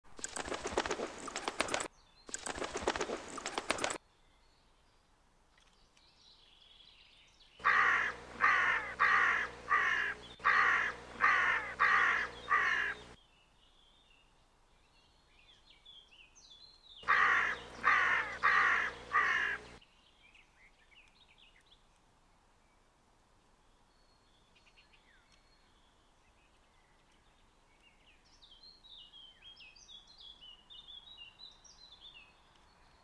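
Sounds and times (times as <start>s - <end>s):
crow cawing: 7.6s - 13.2s, 17.0s - 19.8s
faint small-bird chirps: 23.7s - 33.0s.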